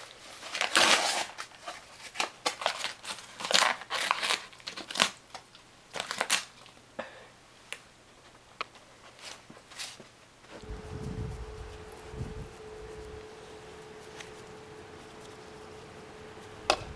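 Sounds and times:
dog tearing paper: 0.0 - 6.7.

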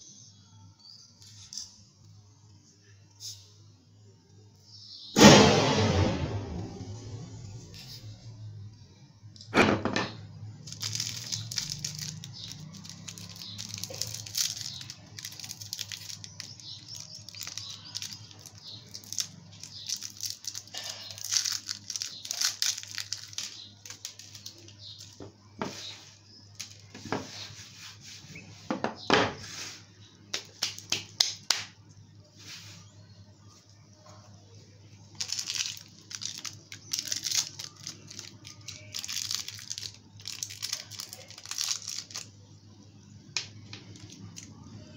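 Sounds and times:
plastic wrapper crinkling and tearing: 10.6 - 25.3, 26.6 - 27.0, 35.1 - 42.3, 43.6 - 44.6.

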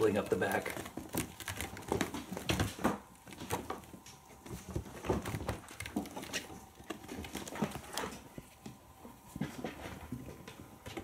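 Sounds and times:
kitten claws scratching a post: 0.3 - 8.3.

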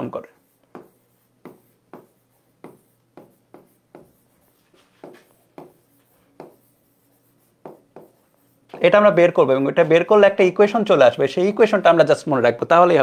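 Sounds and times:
pen strokes on whiteboard: 0.0 - 9.2.

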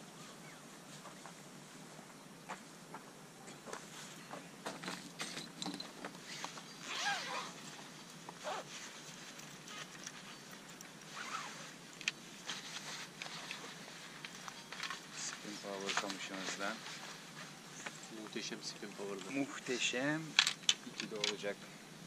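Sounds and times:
objects being handled: 3.8 - 18.1.

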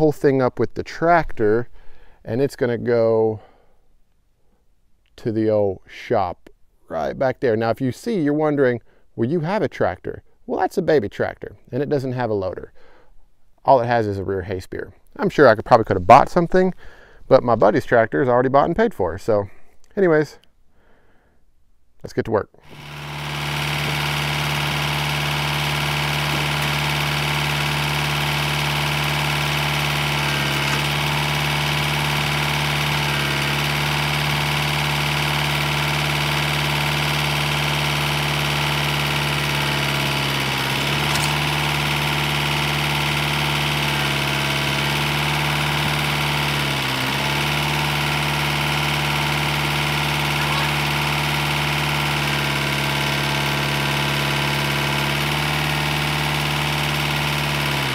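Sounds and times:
tractor engine idling: 22.6 - 57.9.

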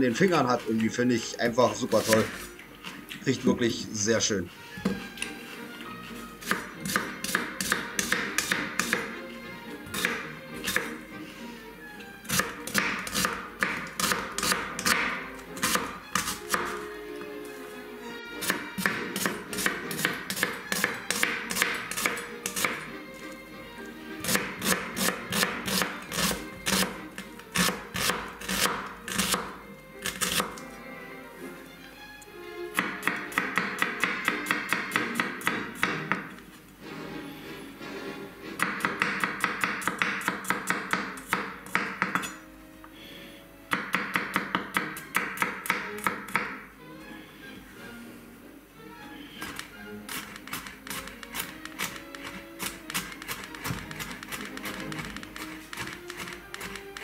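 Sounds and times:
background music: 0.0 - 57.0
knife chopping on wooden board: 6.4 - 9.2, 9.9 - 10.9, 12.3 - 16.8, 18.4 - 22.9, 24.2 - 30.6, 32.8 - 36.4, 38.6 - 42.3, 43.7 - 46.6, 49.4 - 57.0.

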